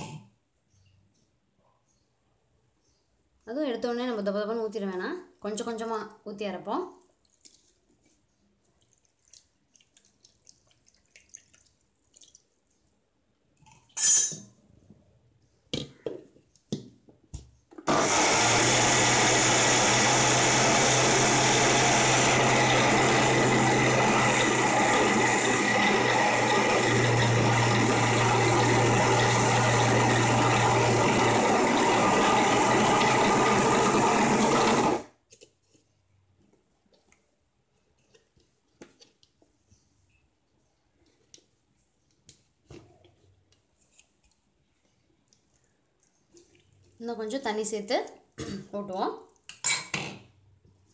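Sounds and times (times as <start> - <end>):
steel jar clinks and knocks: 14.0 - 14.5
mixer grinder running: 17.9 - 35.1.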